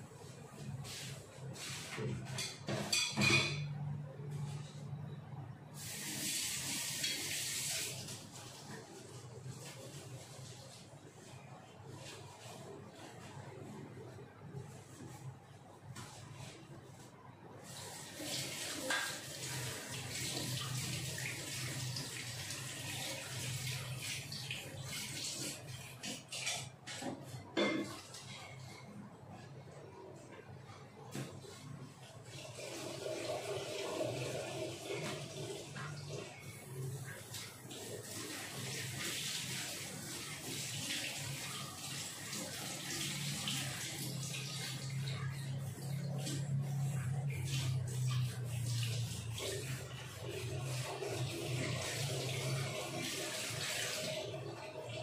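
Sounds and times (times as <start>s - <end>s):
chilli simmering and sizzling: 5.8s - 13.9s, 32.2s - 55.0s.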